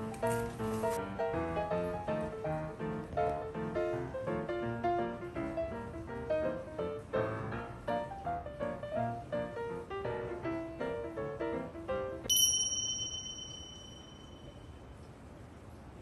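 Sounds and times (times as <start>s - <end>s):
faint room hiss: 0.0s - 16.0s
bright bell-like ding: 12.3s - 14.8s.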